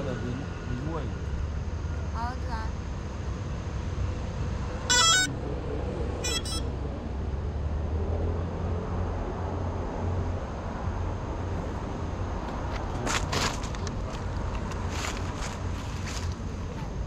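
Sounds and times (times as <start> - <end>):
road traffic rumble: 0.0 - 17.0
faint pulsing beep: 4.9 - 5.3, 6.2 - 6.7
loud buzzy beep: 4.9 - 5.3, 6.2 - 6.7.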